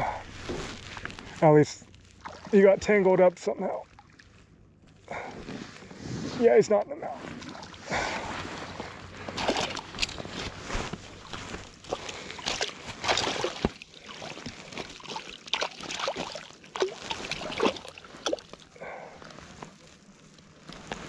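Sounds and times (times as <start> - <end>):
water splashes and drips: 2.1 - 2.6, 3.8 - 4.4, 9.3 - 10.3, 11.2 - 18.8.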